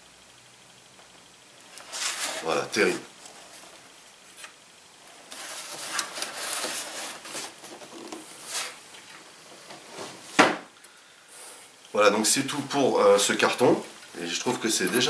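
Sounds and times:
cardboard packaging rubbing: 1.8s - 3.7s, 5.1s - 8.8s.

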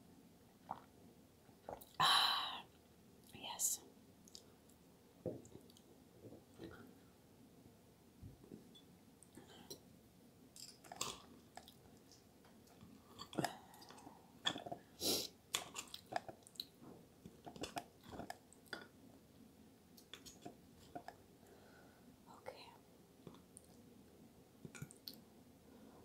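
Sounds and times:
close chewing: 15.5s - 18.8s.

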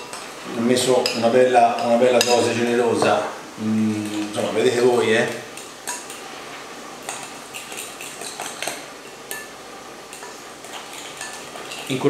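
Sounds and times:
utensil clinking on glass bowl: 1.8s - 3.2s
utensil stirring thick mixture: 10.1s - 12.0s.

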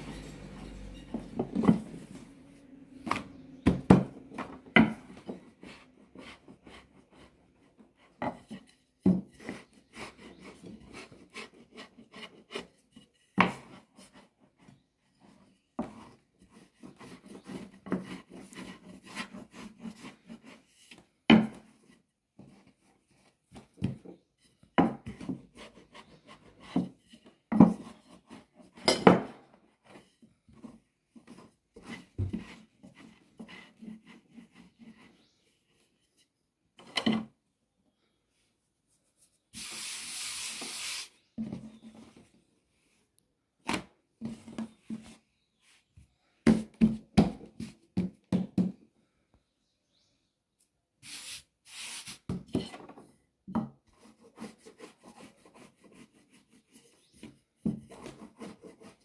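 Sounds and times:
rolling pin rolling dough: 0.0s - 35.2s.

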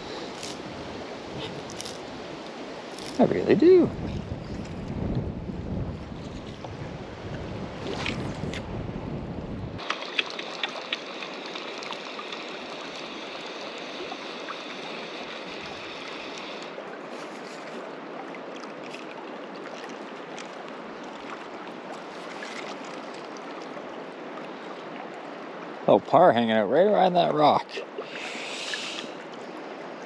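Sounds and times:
river water running: 0.0s - 8.9s, 9.7s - 30.0s
wind rumbling on microphone: 0.0s - 9.9s.

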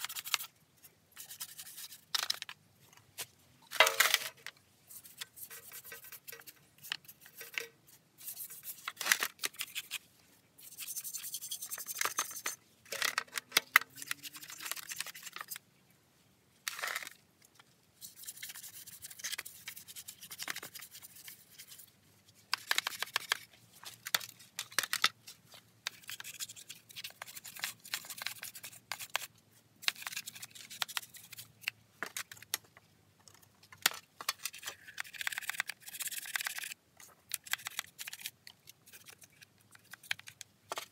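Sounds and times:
stiff brush scrubbing plastic: 4.9s - 10.0s.

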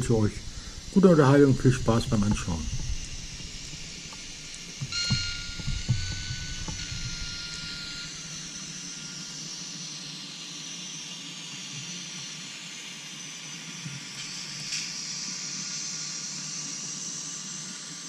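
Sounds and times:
low knocks: 0.0s - 8.0s
train rolling with hissing whine: 0.0s - 18.0s.

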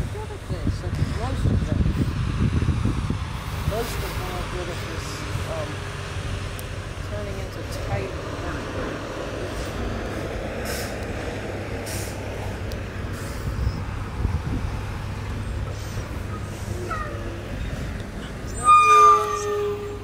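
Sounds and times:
diesel truck engine running: 0.0s - 20.0s
air brake hisses: 10.6s - 11.0s, 11.8s - 12.2s
high-pitched squeal: 15.8s - 20.0s.

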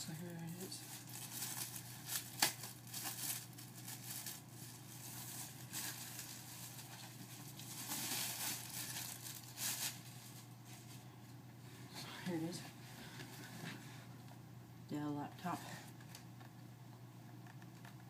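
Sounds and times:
plastic packaging crinkling: 0.0s - 10.5s.

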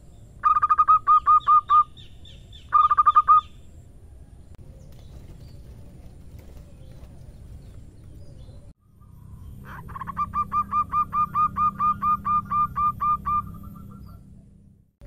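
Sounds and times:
low background rumble: 3.4s - 15.0s
dove cooing: 9.6s - 14.5s.

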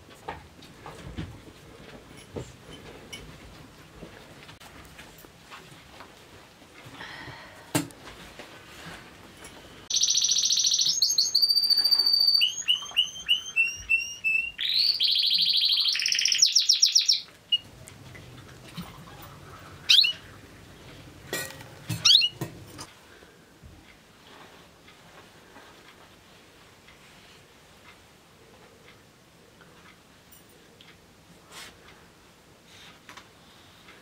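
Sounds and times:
songbird singing trills: 9.9s - 17.7s, 19.8s - 20.3s
glasses clinking: 21.3s - 22.9s.

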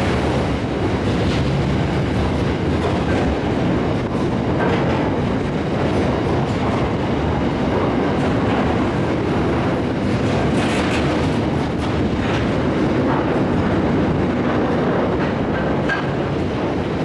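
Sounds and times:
train wheels rumbling on rails: 0.0s - 17.0s
wheels clicking over rail joints: 0.0s - 17.0s.

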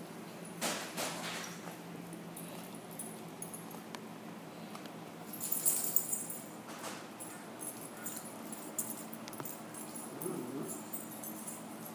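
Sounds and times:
collar tags jingling: 5.3s - 6.6s, 7.2s - 11.9s
dog whining: 10.0s - 11.0s.

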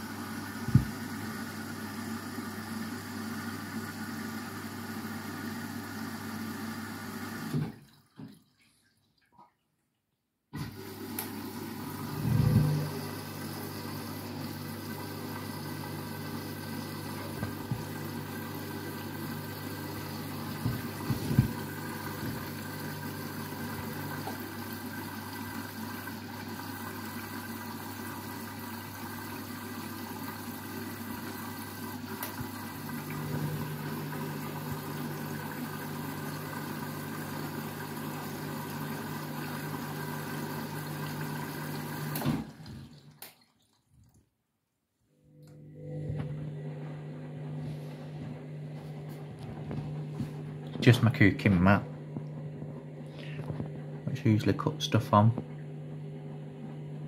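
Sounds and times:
washing machine motor humming: 0.0s - 8.2s, 10.6s - 43.2s, 45.1s - 57.0s
knocks in washing machine: 0.6s - 1.0s, 20.6s - 22.5s.

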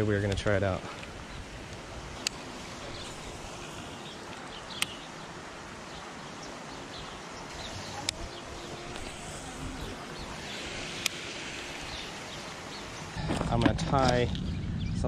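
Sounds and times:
steady background hiss: 0.0s - 14.3s
sharp clicks: 0.2s - 3.2s, 4.2s - 5.0s.

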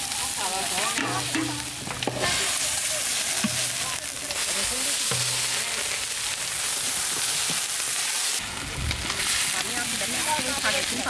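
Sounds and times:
ladles stirring greens: 0.0s - 11.0s
water boiling hard: 0.0s - 11.0s.

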